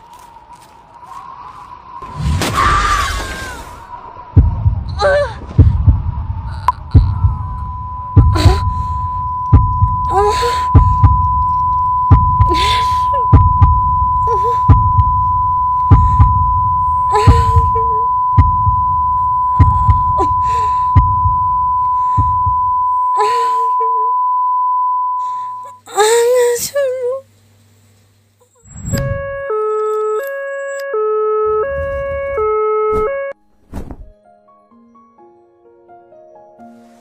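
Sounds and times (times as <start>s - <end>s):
heartbeat thumping: 4.4s - 22.8s
high-pitched ringing tone: 6.5s - 25.8s.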